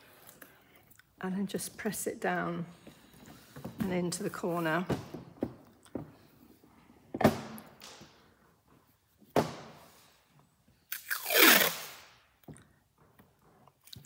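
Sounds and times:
paper tape ripping off roll: 0:11.0 - 0:12.2.

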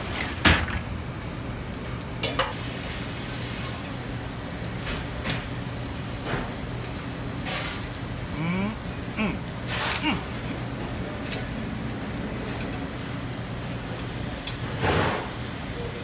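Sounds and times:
food sizzling on grill: 0:00.9 - 0:16.0
metal tongs clacking on grill: 0:11.2 - 0:11.5.

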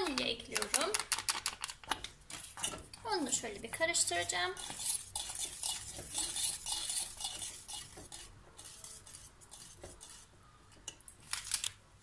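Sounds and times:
whisk scraping metal pot: 0:02.4 - 0:10.4.

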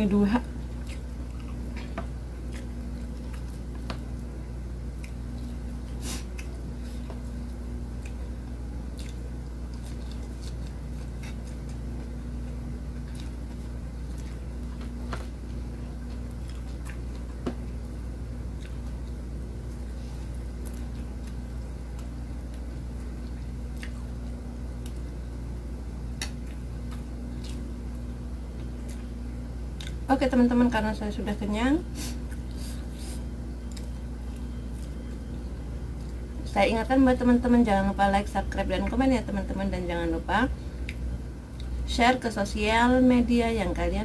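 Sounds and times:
steady low hum: 0:00.0 - 0:44.0
person chewing food: 0:00.5 - 0:30.1, 0:32.0 - 0:36.4, 0:40.7 - 0:41.8.

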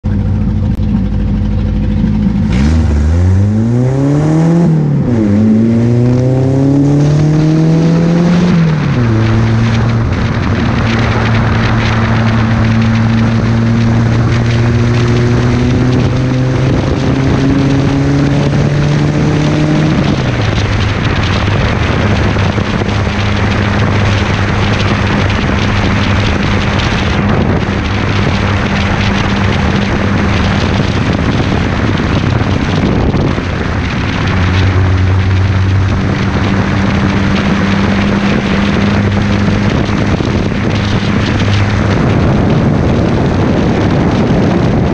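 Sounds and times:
car engine accelerating: 0:00.0 - 0:44.9
wind and road noise: 0:00.0 - 0:44.9.

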